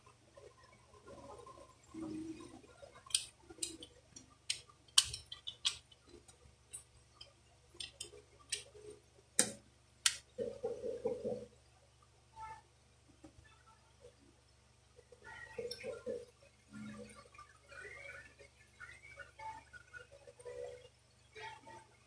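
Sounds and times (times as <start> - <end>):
air pistol parts clicking: 4.5 - 5.9.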